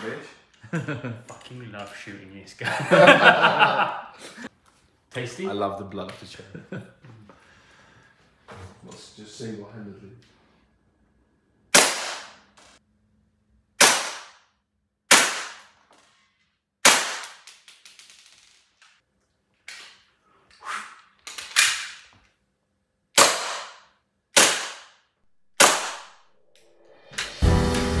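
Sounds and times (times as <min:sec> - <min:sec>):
bb gun cracks: 0:11.8 - 0:12.6, 0:13.8 - 0:14.4, 0:15.1 - 0:15.8, 0:16.8 - 0:18.1, 0:23.2 - 0:25.0, 0:25.6 - 0:26.2.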